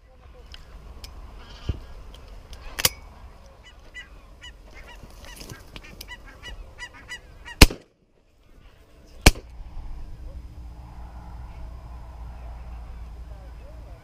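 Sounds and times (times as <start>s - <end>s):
geese honking: 3.6s - 7.6s
shotgun shots: 7.6s - 7.9s, 9.2s - 9.5s.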